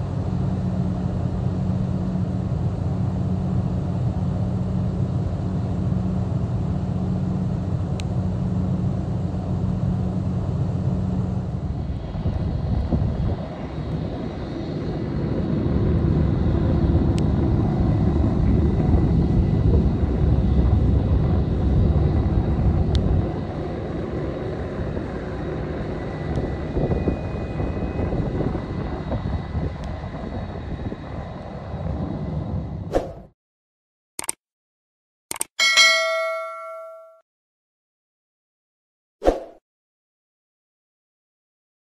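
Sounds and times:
jet engines taxiing: 0.0 - 32.9.

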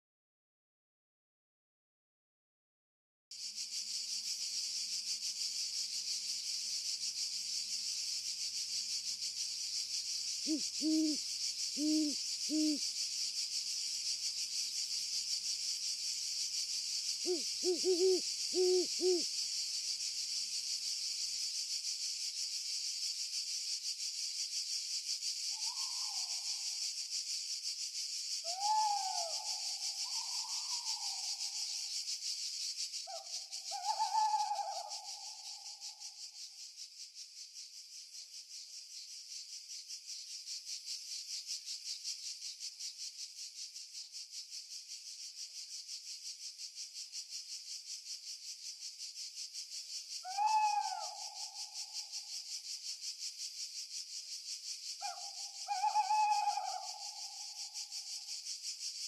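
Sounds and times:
higher bending bird calls: 10.5 - 11.2, 11.8 - 12.8, 17.3 - 19.2
owl hooting: 10.5 - 11.2, 11.8 - 12.8, 17.3 - 19.2, 28.5 - 29.4, 33.1 - 35.0, 50.2 - 51.2, 55.0 - 57.0.

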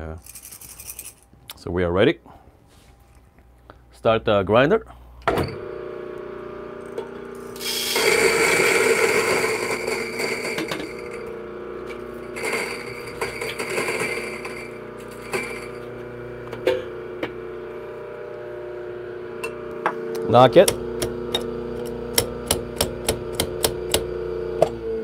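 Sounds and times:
coffee grinder motor humming: 5.5 - 25.0
gritty grinding of beans: 6.8 - 16.2.

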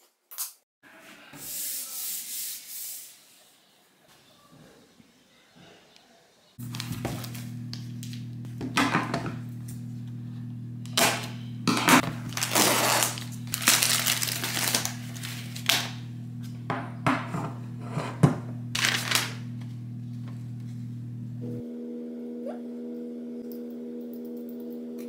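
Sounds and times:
cardboard and paper rustling: 6.6 - 8.2, 12.0 - 16.0, 18.8 - 19.4
low hum: 6.6 - 25.0.

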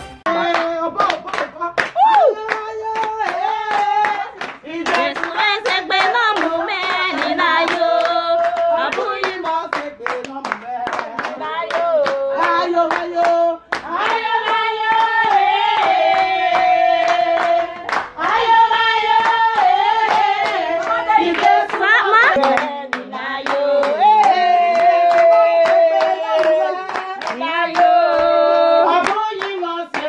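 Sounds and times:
hands clapping in rhythm: 0.0 - 30.0
women singing: 2.0 - 30.0.

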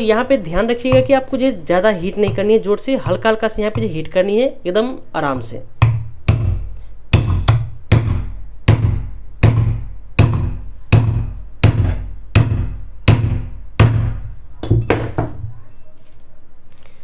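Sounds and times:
hammer tapping metal drift: 2.1 - 4.0, 5.8 - 14.3.

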